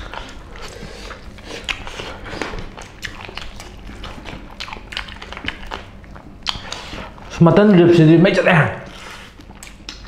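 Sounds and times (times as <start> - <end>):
wet mouth smacks and chewing: 0.0 - 7.1, 9.3 - 10.0.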